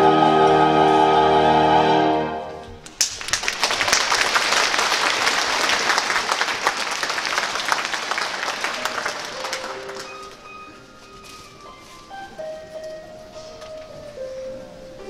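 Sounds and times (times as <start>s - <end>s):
orchestral music: 0.0s - 2.8s
audience applause: 2.9s - 10.5s.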